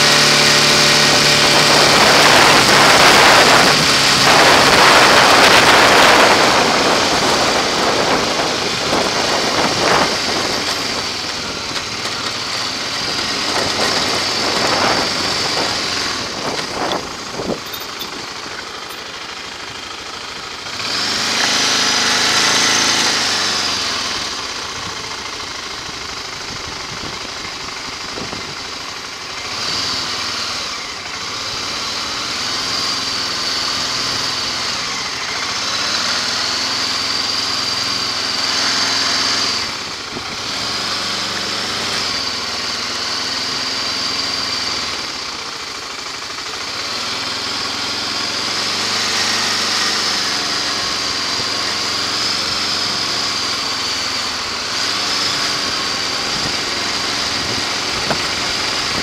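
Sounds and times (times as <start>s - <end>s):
vehicle engine running: 0.0s - 59.0s
wind rushing over microphone: 1.3s - 11.6s, 13.1s - 17.7s.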